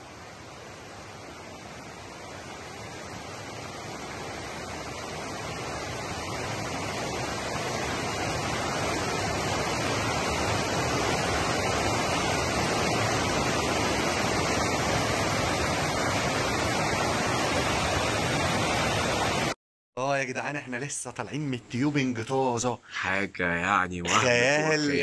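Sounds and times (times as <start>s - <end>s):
river rapids rushing over rocks: 0.7s - 19.5s.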